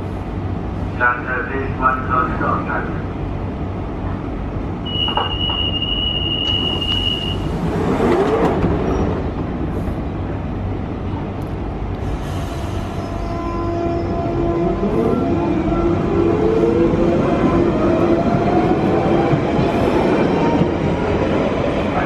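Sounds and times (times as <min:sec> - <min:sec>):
train doors closing: 0:04.8 - 0:10.4
high door-warning tone: 0:04.9 - 0:07.4.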